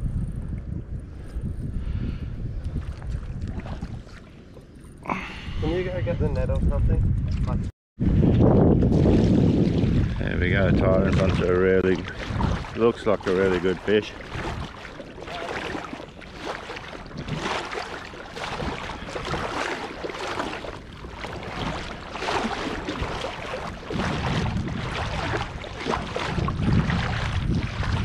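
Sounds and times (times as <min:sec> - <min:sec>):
wind buffeting microphone: 0:00.0 - 0:28.0
water sloshing around legs: 0:02.6 - 0:05.2, 0:08.8 - 0:28.0.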